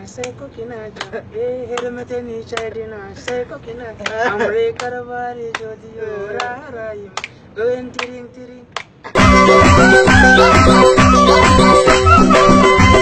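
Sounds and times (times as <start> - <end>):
man singing unaccompanied: 0.0 - 11.4
hand claps: 1.0 - 3.4, 4.0 - 5.7, 7.2 - 12.0
loud recorded music: 9.2 - 13.0.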